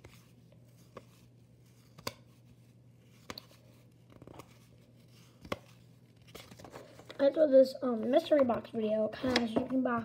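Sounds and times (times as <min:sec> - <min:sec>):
rustling of cards: 0:00.0 - 0:07.4
cards clicking against stack: 0:01.8 - 0:02.4, 0:05.3 - 0:07.2.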